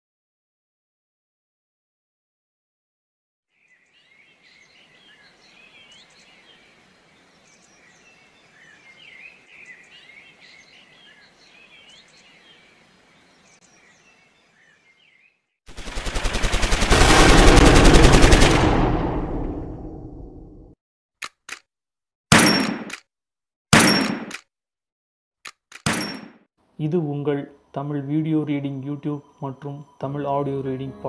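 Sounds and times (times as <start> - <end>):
birds chirping: 3.6 - 15.5
loud rapid rattle: 15.7 - 19.8.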